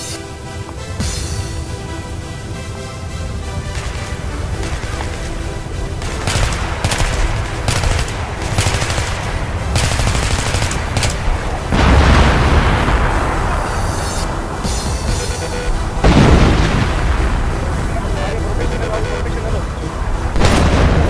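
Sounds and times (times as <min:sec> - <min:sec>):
long noisy blast: 0:00.0 - 0:21.0
gunfire-like bursts: 0:03.4 - 0:21.0
loud electronic music: 0:13.8 - 0:20.9.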